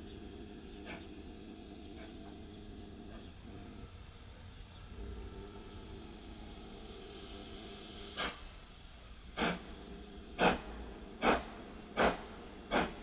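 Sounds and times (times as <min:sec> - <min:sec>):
steam locomotive exhaust chuffs: 0:00.0 - 0:13.0.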